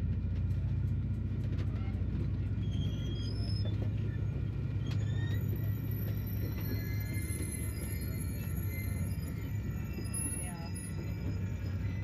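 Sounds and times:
train wheels rumbling on rails: 0.0 - 12.0
faint high squeaks: 2.4 - 12.0.

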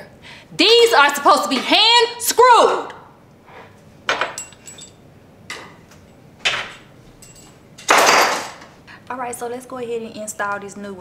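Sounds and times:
objects knocking on counter: 7.9 - 8.7.

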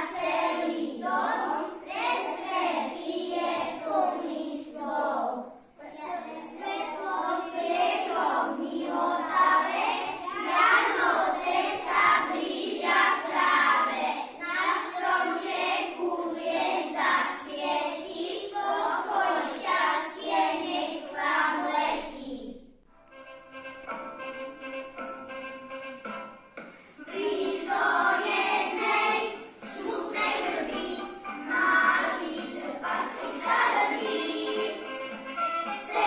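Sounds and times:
children singing in unison: 0.0 - 22.4, 27.0 - 36.0
recorded instrumental music: 22.8 - 36.0.

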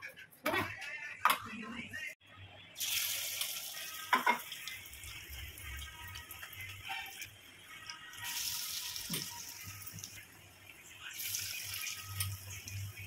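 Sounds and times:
fish sizzling in hot oil: 2.8 - 13.0.

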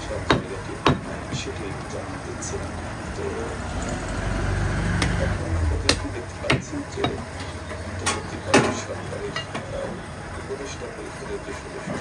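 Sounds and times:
meat cleaver chopping on wood: 0.2 - 1.5, 5.0 - 5.2, 5.8 - 7.3.

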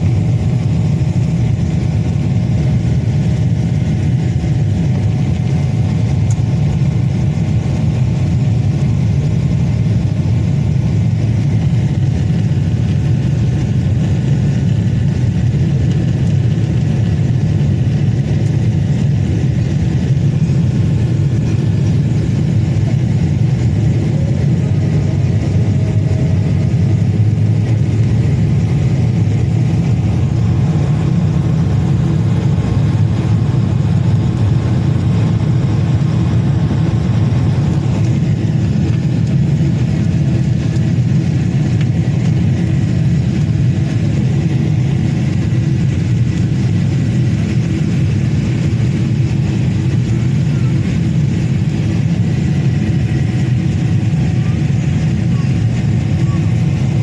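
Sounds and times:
jet engine cabin roar: 0.0 - 57.0.

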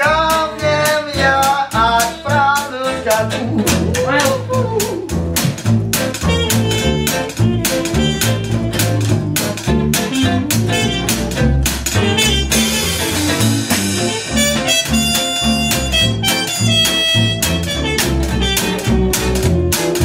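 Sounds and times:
bass line: 0.0 - 20.0
guitar strumming chords: 0.0 - 20.0
trumpet solo: 6.2 - 9.1, 10.1 - 20.0.

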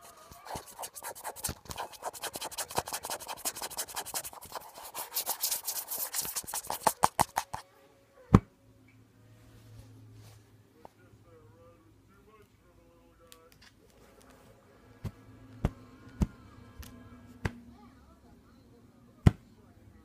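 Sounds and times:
scratching against bedding fabric: 0.0 - 7.6.

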